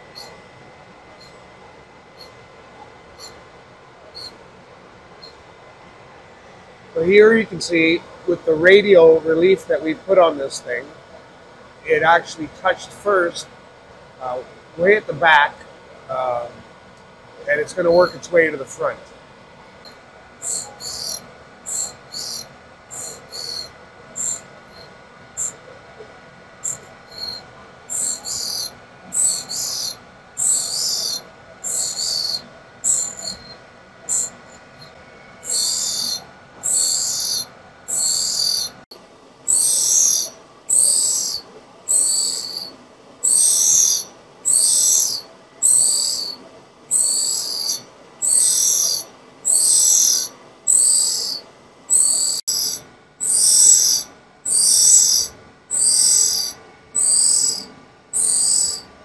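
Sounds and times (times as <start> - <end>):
steady machine hum: 0.0 - 59.0
grinding wheel hissing grind: 17.3 - 38.9, 39.5 - 59.0.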